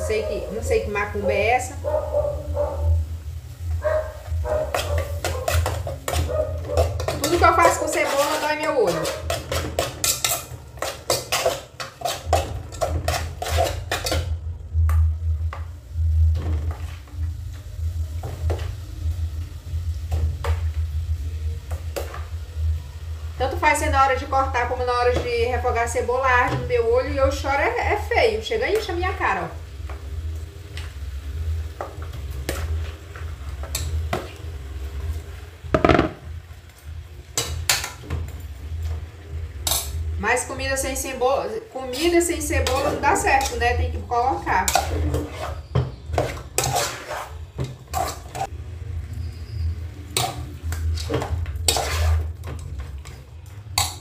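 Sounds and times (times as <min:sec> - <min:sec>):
spoon scraping steel pot: 0:04.7 - 0:14.2, 0:42.4 - 0:43.8, 0:44.5 - 0:48.5, 0:50.1 - 0:53.2
metal spoon knocking on pot: 0:35.7 - 0:36.3.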